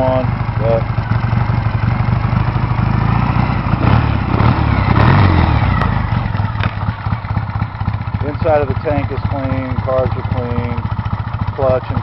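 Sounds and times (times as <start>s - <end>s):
motorcycle engine idling: 0.0s - 12.0s.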